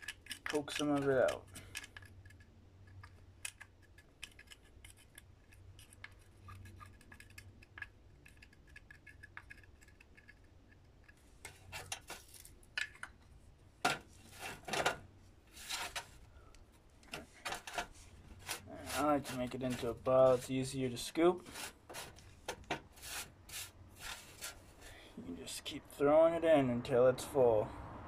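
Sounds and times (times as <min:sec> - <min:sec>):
scraping strokes: 0:14.1 - 0:14.8, 0:15.5 - 0:16.3, 0:17.1 - 0:25.0.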